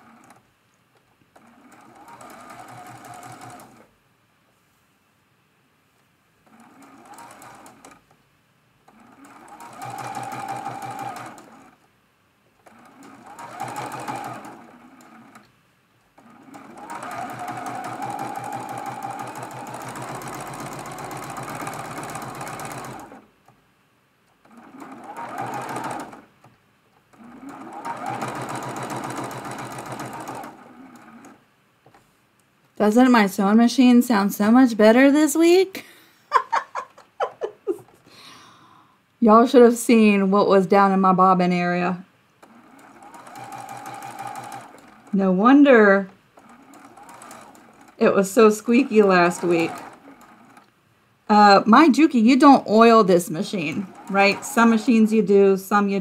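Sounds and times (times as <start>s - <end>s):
sewing machine stitching: 0.0s - 0.4s, 1.3s - 3.9s, 6.4s - 8.1s, 8.9s - 11.8s, 12.6s - 15.5s, 16.2s - 23.6s, 24.4s - 31.4s, 42.4s - 50.7s, 51.3s - 56.0s.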